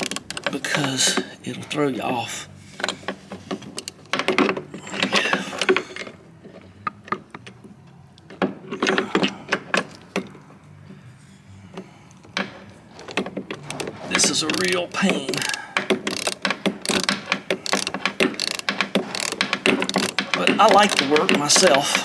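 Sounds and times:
hand tools clattering on metal: 13.1 - 22.0.

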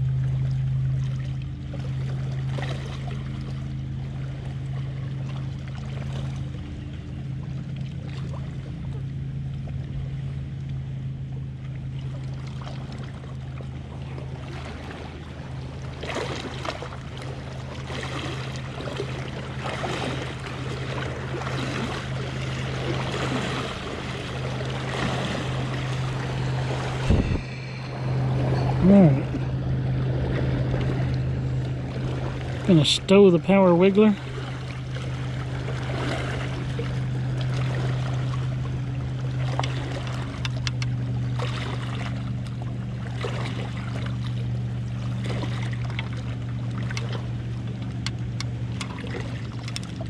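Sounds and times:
motorboat engine drone: 0.0 - 50.0
waves lapping against rocks: 11.8 - 50.0.

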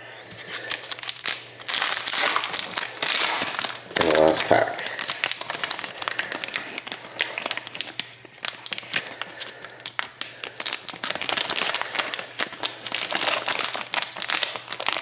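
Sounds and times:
foil wrapper tearing and crinkling: 0.6 - 15.0.

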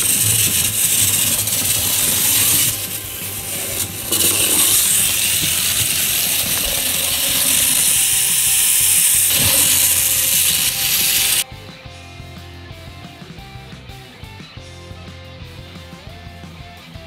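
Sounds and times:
clockwork toy train rattling whir: 0.0 - 11.4.

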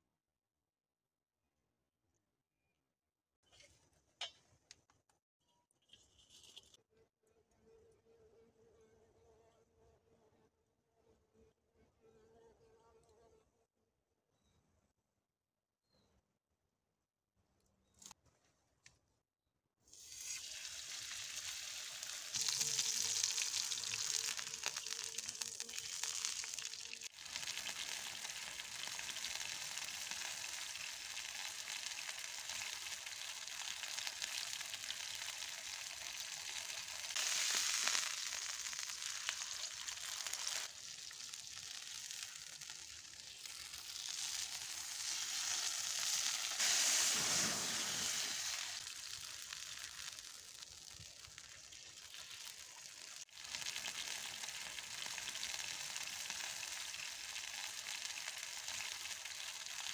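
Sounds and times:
steak sizzling in a frying pan: 20.0 - 59.9.

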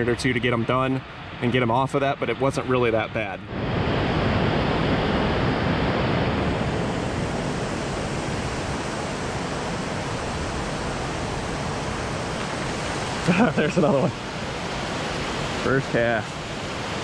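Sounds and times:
flowing water rushing: 6.3 - 17.0.

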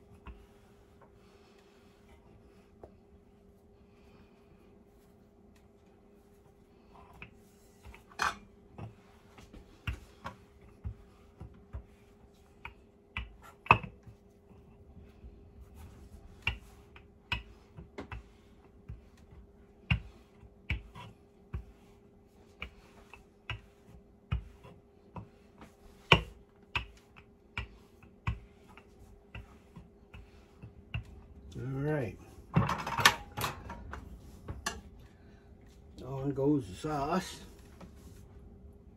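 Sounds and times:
faint steady hum: 0.0 - 38.9
rolling pin on wooden board: 6.4 - 31.6.

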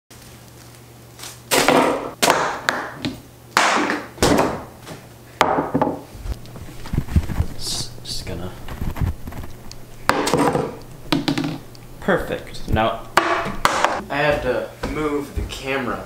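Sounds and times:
low hum: 6.1 - 14.1.

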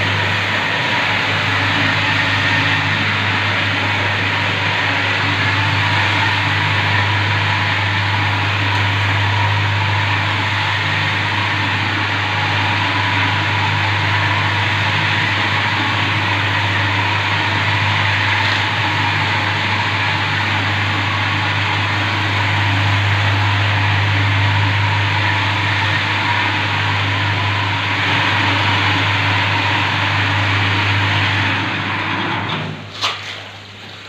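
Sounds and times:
low motor hum: 0.0 - 34.0.

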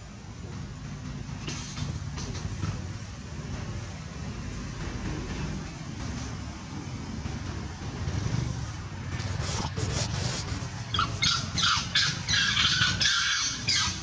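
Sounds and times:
low engine drone: 0.0 - 14.0
macaques squealing and screeching: 10.8 - 14.0.

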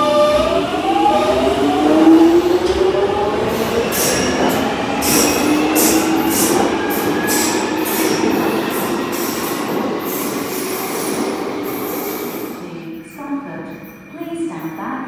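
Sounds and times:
train rushing rumble: 0.0 - 13.7
train wheels squealing: 3.9 - 9.4.

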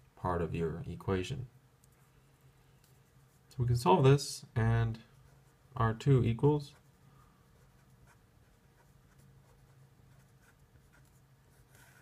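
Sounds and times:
low steady hum: 0.0 - 12.0
felt-tip marker writing on paper: 7.6 - 12.0.

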